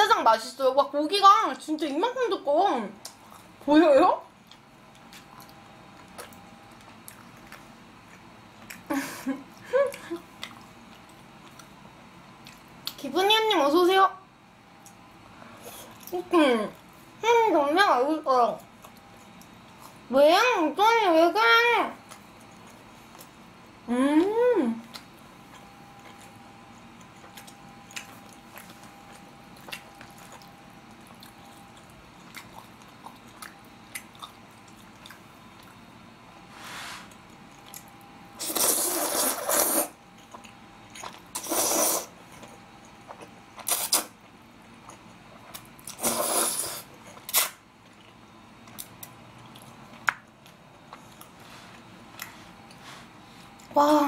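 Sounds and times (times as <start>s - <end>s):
chewing: 4.4s - 8.9s, 9.5s - 13.0s, 18.6s - 20.1s, 22.0s - 23.4s, 24.2s - 35.9s, 37.1s - 53.8s
noodles slurped: 38.4s - 40.4s, 41.2s - 42.2s, 43.6s - 44.2s, 45.9s - 47.6s.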